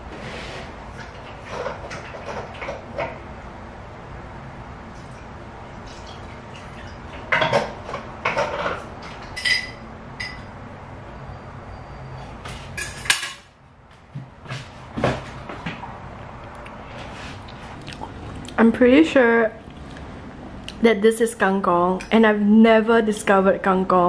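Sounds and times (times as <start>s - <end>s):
dishes clattering: 6.6s - 10.6s, 12.8s - 13.5s
crockery clinking: 8.3s - 10.6s.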